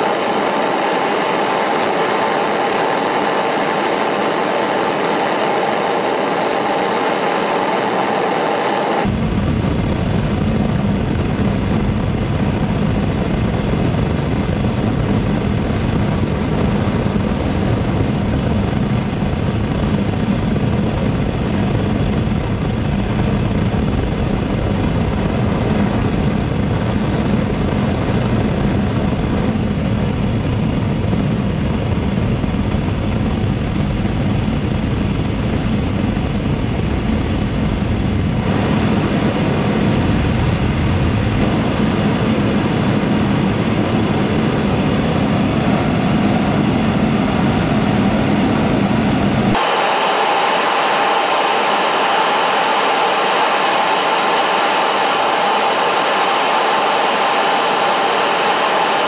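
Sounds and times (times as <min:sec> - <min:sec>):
gas burner rushing: 0:49.5 - 0:59.0.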